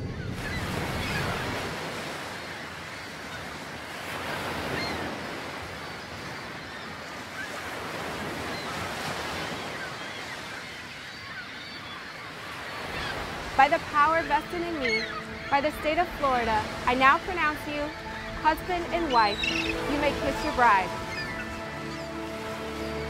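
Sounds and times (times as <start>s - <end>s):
small waves on rocky shore: 0.0s - 21.7s.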